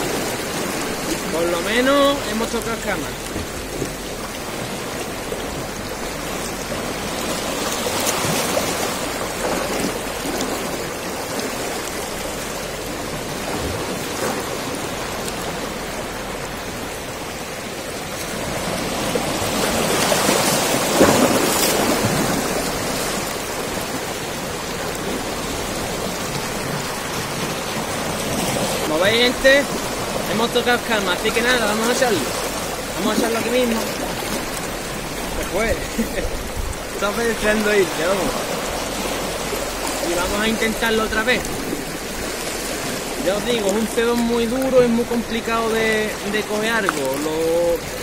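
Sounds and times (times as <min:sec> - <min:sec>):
waves washing over rocks: 0:00.0 - 0:48.0.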